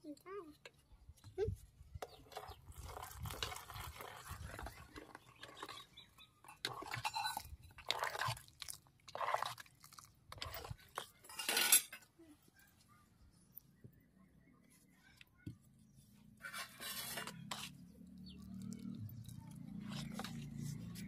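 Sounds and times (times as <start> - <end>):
spoon scraping metal pot: 2.0 - 9.7, 16.4 - 21.0.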